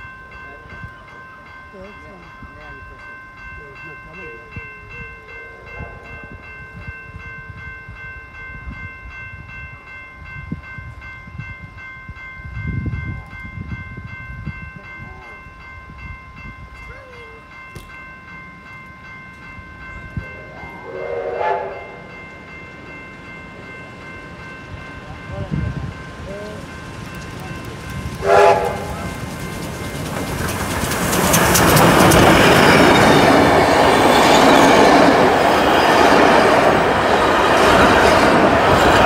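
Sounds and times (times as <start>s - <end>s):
level crossing bell ringing: 0.0s - 30.1s
steam locomotive approaching: 0.0s - 39.0s
steam whistle blast: 20.6s - 21.9s, 28.2s - 28.9s.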